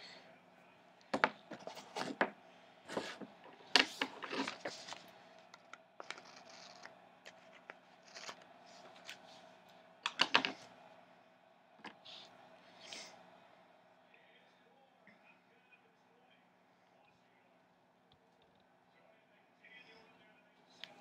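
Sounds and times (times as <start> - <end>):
faint steady hum: 0.0 - 21.0
paper rustling and sliding: 1.5 - 2.2, 2.9 - 5.1.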